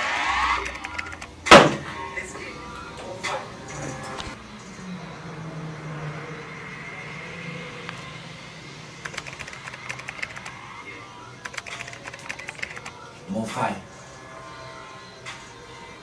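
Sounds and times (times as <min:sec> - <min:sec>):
keyboard typing: 0:00.5 - 0:01.4, 0:09.0 - 0:10.6, 0:11.4 - 0:13.0.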